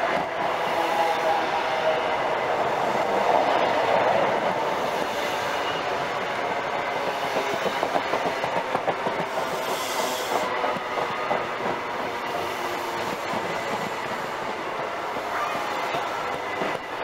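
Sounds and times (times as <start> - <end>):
train wheels clattering over rail joints: 6.9 - 15.3.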